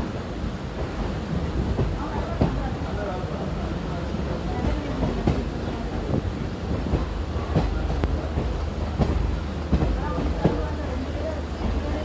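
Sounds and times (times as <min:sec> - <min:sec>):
train wheels rumbling: 0:00.0 - 0:12.0
wheels clacking on rail joints: 0:04.4 - 0:12.0.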